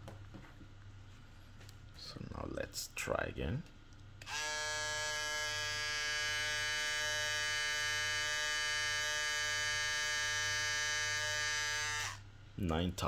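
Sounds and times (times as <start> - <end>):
electric shaver buzzing: 4.2 - 12.2.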